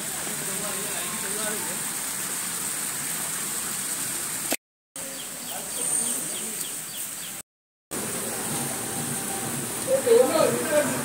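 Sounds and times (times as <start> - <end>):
steady rain hiss: 0.0 - 11.0
bird chirping: 5.0 - 7.4.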